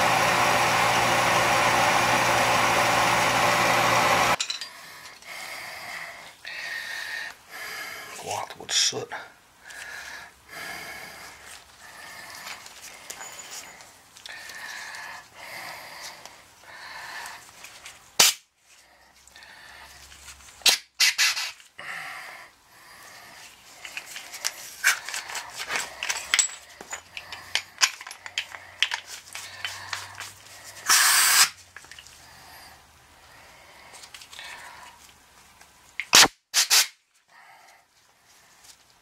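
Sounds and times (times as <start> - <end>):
gas blower blasts: 0.0 - 4.4, 30.8 - 31.6
metal parts clicking and rattling: 23.8 - 30.3.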